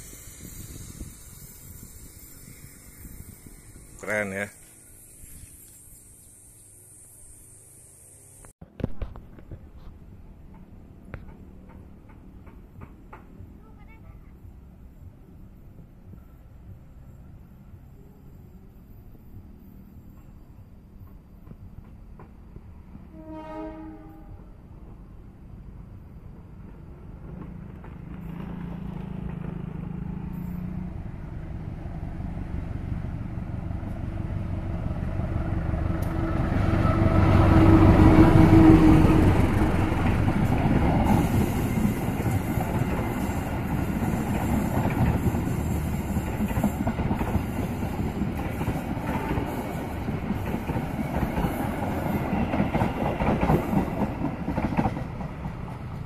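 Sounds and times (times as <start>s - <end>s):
diesel locomotive passing: 0.0s - 56.0s
train wheels clacking on rails: 9.0s - 14.0s, 26.7s - 30.9s, 35.7s - 56.0s.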